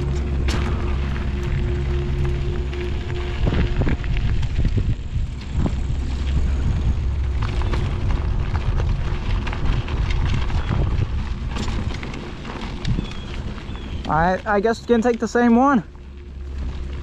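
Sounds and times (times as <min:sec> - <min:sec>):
tyres crunching over stones: 0:00.0 - 0:17.0
wind buffeting microphone: 0:00.0 - 0:17.0
small clicks and rattles: 0:04.4 - 0:17.0.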